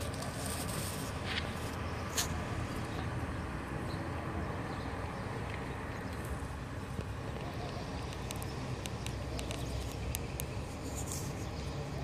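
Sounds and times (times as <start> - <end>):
low city rumble: 0.0 - 12.0
faint high ticks: 8.0 - 10.6.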